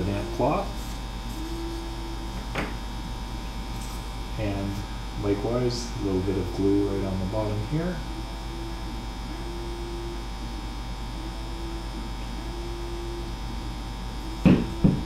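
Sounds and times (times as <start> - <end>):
electrical mains hum: 0.0 - 15.0.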